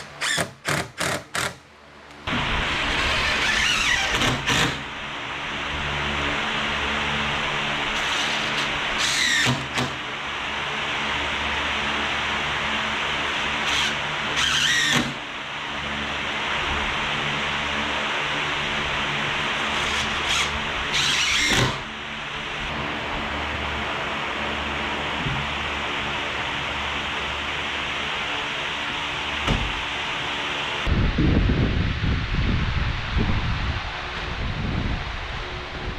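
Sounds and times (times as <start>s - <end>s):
cordless drill driving screws: 0.0s - 1.6s, 8.0s - 10.0s, 13.6s - 15.2s, 19.7s - 21.8s
steady rushing background noise: 1.6s - 35.9s.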